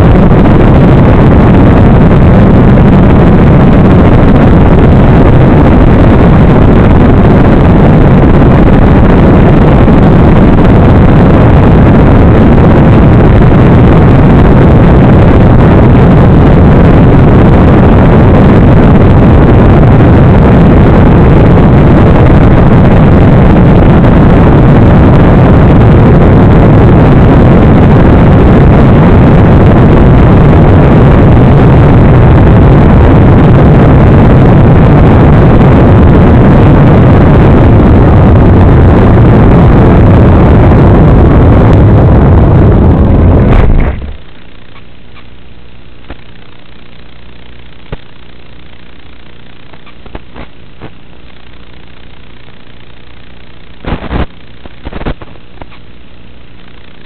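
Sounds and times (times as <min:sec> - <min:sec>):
wind rush: 0:00.0 - 0:44.8, 0:53.8 - 0:55.8.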